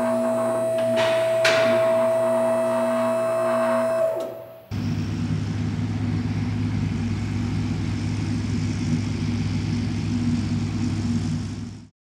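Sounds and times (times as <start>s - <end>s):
large truck engine running: 4.1s - 11.9s.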